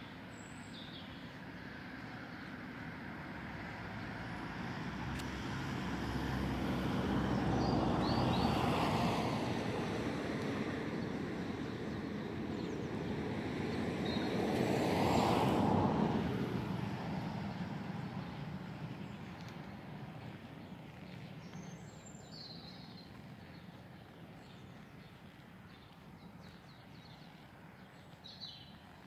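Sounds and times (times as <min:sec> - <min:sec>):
vehicles passing: 0:00.2 - 0:29.0.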